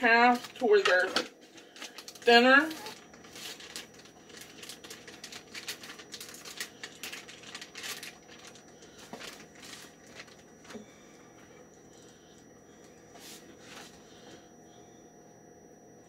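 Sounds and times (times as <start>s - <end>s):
plastic bag crinkling: 0.0s - 10.8s.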